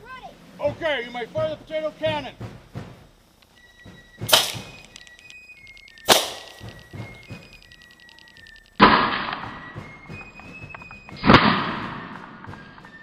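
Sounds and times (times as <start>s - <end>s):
electronic beeping music: 3.5s - 11.3s
potato cannon shots: 4.3s - 4.9s, 6.0s - 7.2s, 8.8s - 9.6s.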